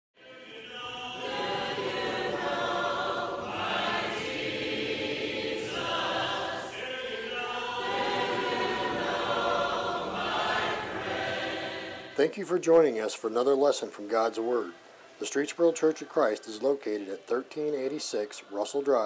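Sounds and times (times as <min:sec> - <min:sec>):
choir singing a cappella: 0:00.2 - 0:12.3, 0:14.2 - 0:19.0.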